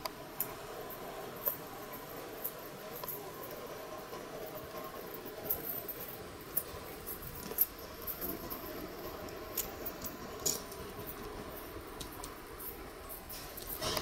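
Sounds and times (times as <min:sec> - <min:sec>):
distant steam locomotive running: 0:00.0 - 0:14.0
metal clicks and clanks: 0:13.2 - 0:14.0.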